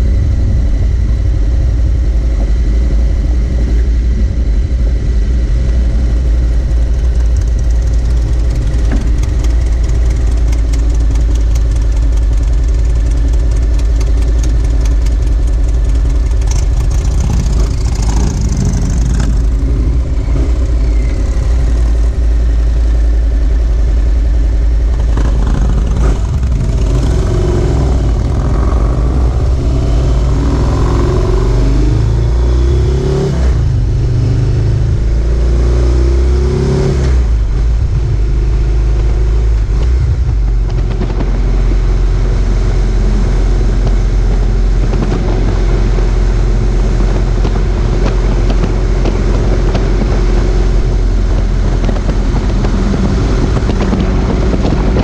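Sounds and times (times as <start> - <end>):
motorcycle engine idling: 0.0 - 32.3
motorcycle revving and pulling away: 0.0 - 55.0.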